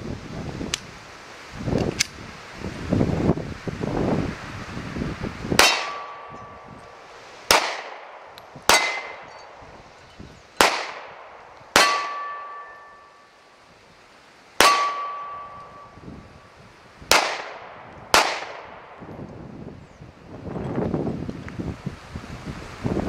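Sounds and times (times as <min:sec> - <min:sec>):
pistol shots: 0:05.6 - 0:06.3, 0:07.5 - 0:09.3, 0:10.6 - 0:13.0, 0:14.6 - 0:15.6, 0:17.1 - 0:19.0
steel plate targets ringing: 0:05.6 - 0:06.8, 0:08.7 - 0:09.6, 0:11.8 - 0:13.3, 0:14.6 - 0:16.0.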